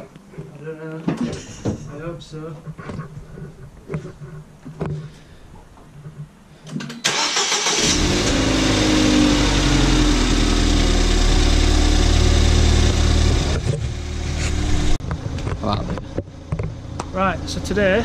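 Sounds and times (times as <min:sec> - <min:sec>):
car engine starting and idling: 0:07.0 - 0:15.0.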